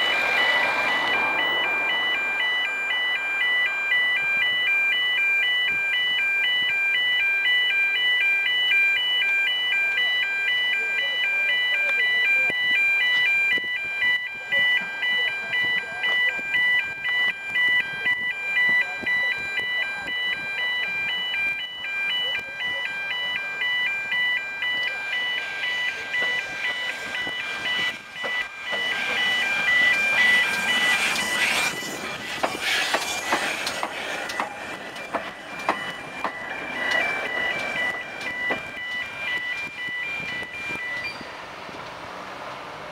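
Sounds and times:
electronic beeping tones: 0:00.0 - 0:32.5, 0:34.2 - 0:41.3
train wheels clicking on rails: 0:26.2 - 0:40.5
steam hiss: 0:30.8 - 0:34.2.

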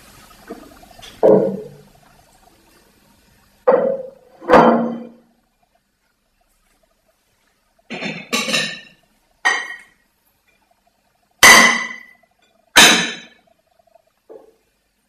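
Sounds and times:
sharp ringing strikes on hard object: 0:11.4 - 0:12.2.

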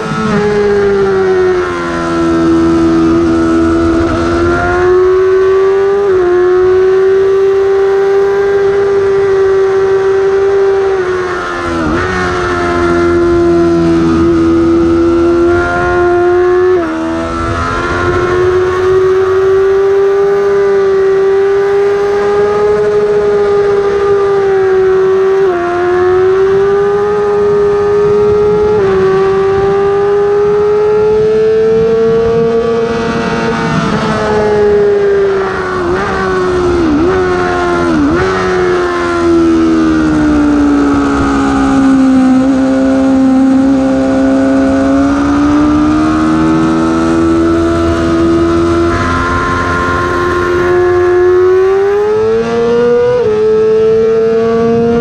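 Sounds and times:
wind rush: 0:00.0 - 0:06.9, 0:10.8 - 0:20.2, 0:26.0 - 0:53.4
motorcycle engine revving: 0:00.0 - 0:55.0.

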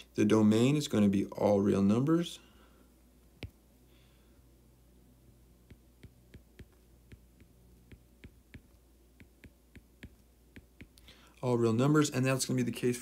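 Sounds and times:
low steady hum: 0:00.0 - 0:13.0
stylus tapping on glass screen: 0:05.6 - 0:11.0.

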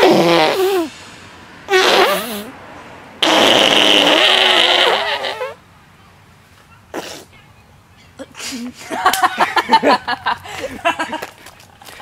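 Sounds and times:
boy laughing: 0:08.3 - 0:12.0.

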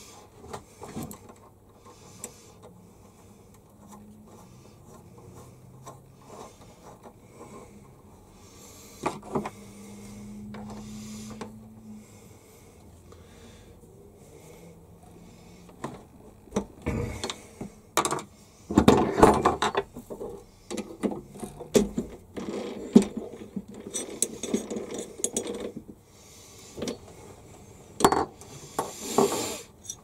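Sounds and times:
metal parts clinking and scraping: 0:18.0 - 0:25.8, 0:28.0 - 0:30.0.

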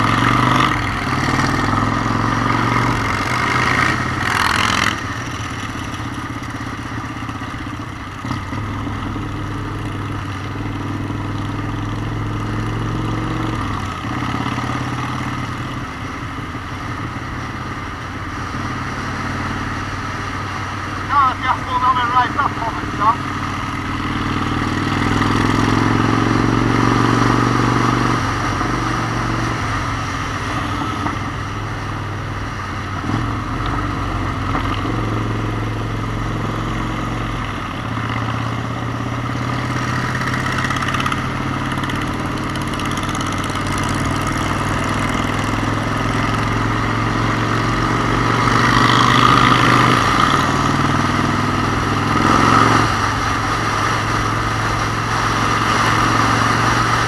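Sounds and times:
motorcycle engine running: 0:00.0 - 0:57.0.

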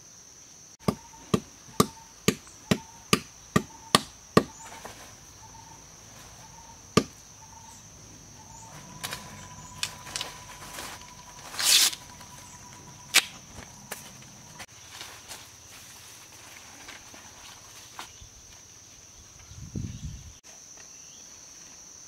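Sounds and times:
insects chirring: 0:00.0 - 0:22.0
stone knocking on tree trunk: 0:07.0 - 0:07.2
bark tearing from trunk: 0:08.9 - 0:12.4.

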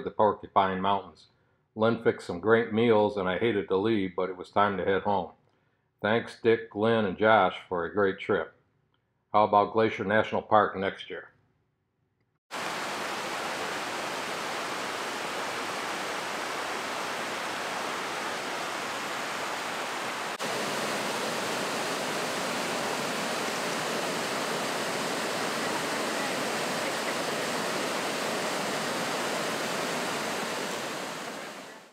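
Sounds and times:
river cascading over rocks: 0:12.6 - 0:31.9.

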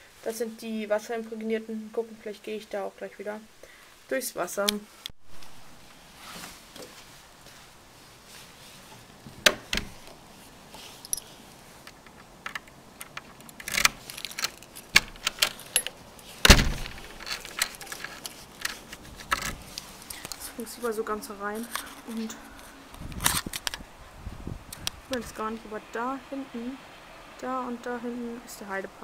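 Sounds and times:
key clicking in door lock: 0:12.5 - 0:17.9
keys jangling: 0:13.0 - 0:18.8.

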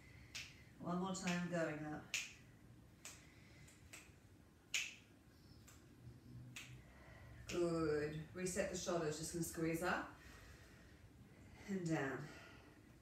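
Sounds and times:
faint room noise: 0:00.0 - 0:13.0
soft sharp snaps: 0:00.2 - 0:07.7.

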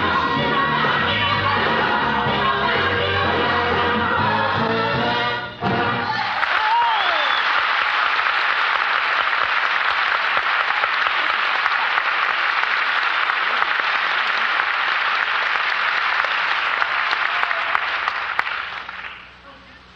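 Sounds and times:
audience applauding: 0:06.1 - 0:19.3.

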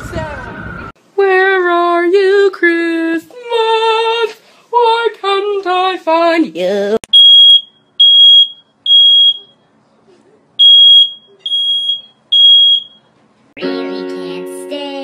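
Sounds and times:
smoke alarm beeping: 0:07.1 - 0:09.6, 0:10.6 - 0:13.1
person singing with music: 0:13.6 - 0:15.0.

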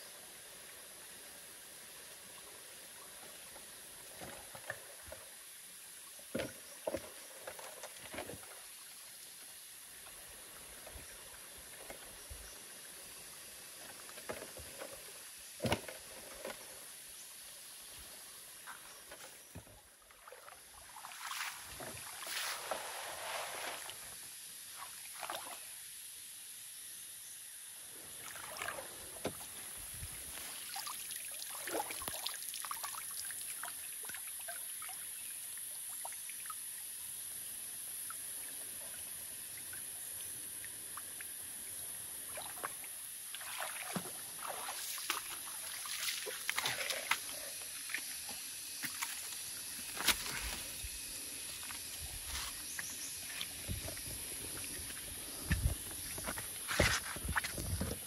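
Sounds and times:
steady high hiss: 0:00.0 - 0:06.8, 0:08.5 - 0:19.6, 0:21.0 - 0:31.6, 0:32.2 - 0:58.0
water sloshing and splashing: 0:18.7 - 0:24.2, 0:28.2 - 0:34.2, 0:42.2 - 0:50.9.

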